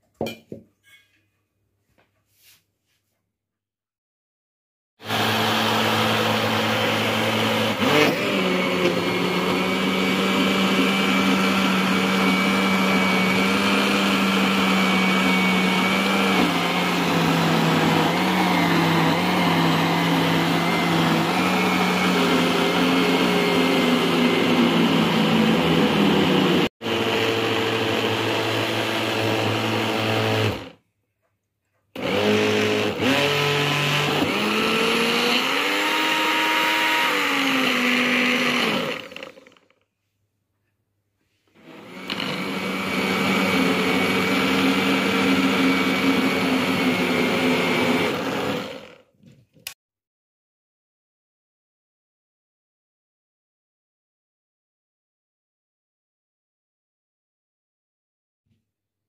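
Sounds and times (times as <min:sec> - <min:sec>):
mixer grinder motor running: 0:05.0 - 0:30.8, 0:32.0 - 0:39.7, 0:41.6 - 0:49.1.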